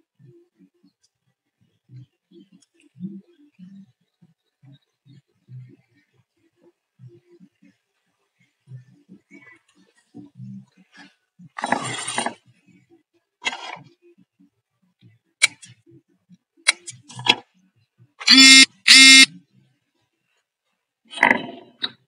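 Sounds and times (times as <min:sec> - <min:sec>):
electronic beeps: 0:18.2 - 0:19.3.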